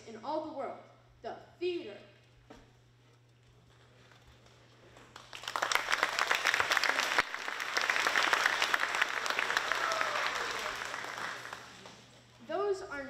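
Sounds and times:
audience applauding: 0:05.1 - 0:12.3.

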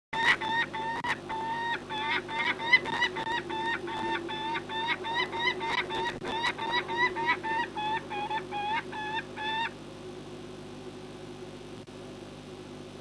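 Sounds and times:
falcon calling: 0:00.2 - 0:09.7
steady low hum: 0:00.2 - 0:13.0.

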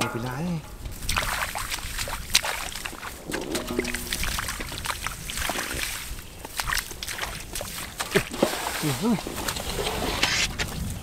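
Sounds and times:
hands splashing in muddy water: 0:00.9 - 0:09.0.

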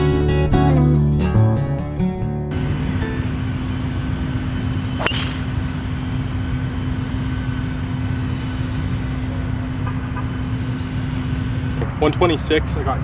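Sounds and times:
constant hum: 0:02.5 - 0:13.0
golf driver striking ball: 0:05.0 - 0:05.8.

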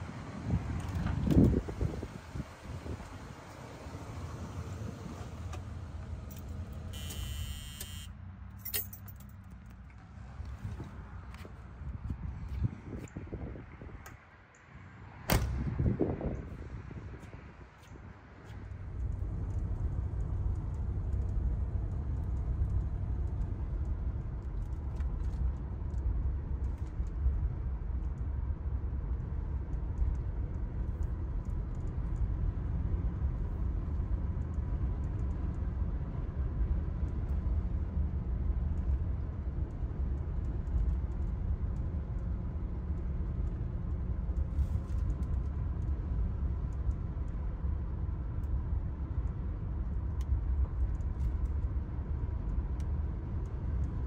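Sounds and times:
car engine rumble from cabin: 0:00.0 - 0:12.6.

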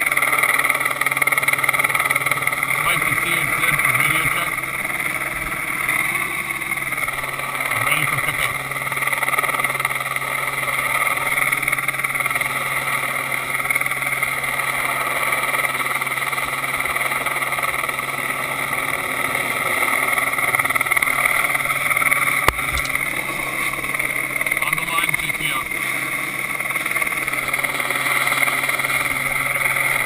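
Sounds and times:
helicopter drone: 0:00.0 - 0:30.0.

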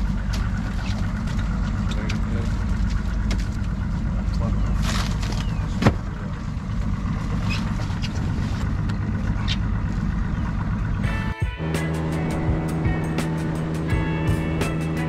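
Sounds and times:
outboard motor idling: 0:00.0 - 0:15.0
music: 0:11.0 - 0:15.0.

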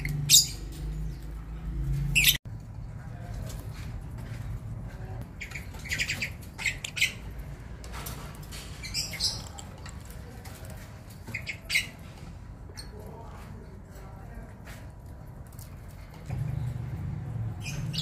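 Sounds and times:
lovebirds squawking: 0:00.0 - 0:01.2, 0:02.1 - 0:02.4, 0:05.3 - 0:07.6, 0:11.2 - 0:12.2.

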